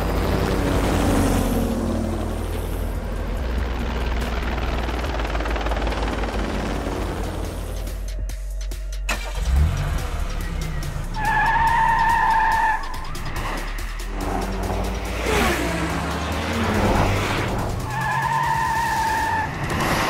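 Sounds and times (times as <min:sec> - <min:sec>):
car tires squealing: 0:11.1 - 0:13.3, 0:17.8 - 0:20.0.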